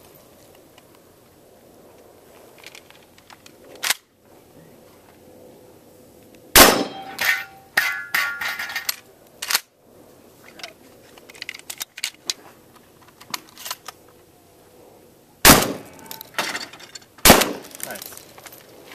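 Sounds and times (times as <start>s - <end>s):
shotgun shot: 6.6s - 7.2s, 15.4s - 16.1s, 17.2s - 17.8s
steel targets clanging: 6.6s - 9.0s, 15.6s - 18.2s.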